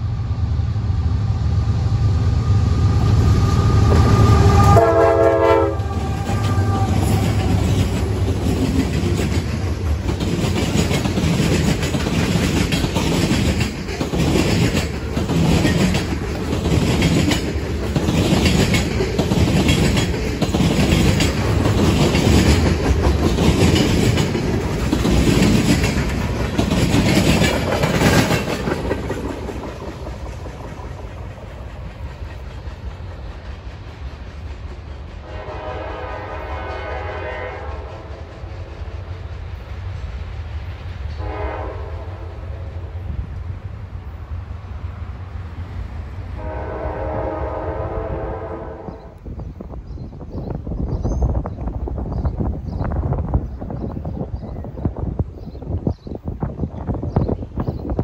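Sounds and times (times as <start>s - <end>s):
locomotive engine drone: 0.0s - 11.5s
train wheels clacking on rails: 2.7s - 58.0s
train horn blast: 3.0s - 7.6s, 35.2s - 38.5s, 41.2s - 43.0s, 46.4s - 49.2s.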